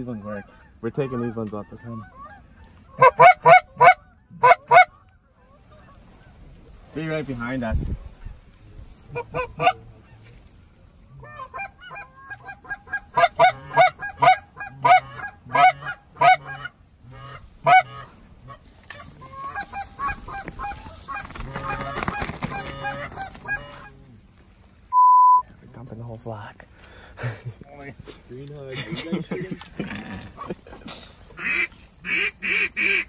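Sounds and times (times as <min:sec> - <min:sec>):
geese honking: 0:00.0 - 0:06.5, 0:09.1 - 0:10.3, 0:11.2 - 0:24.2, 0:30.8 - 0:33.0.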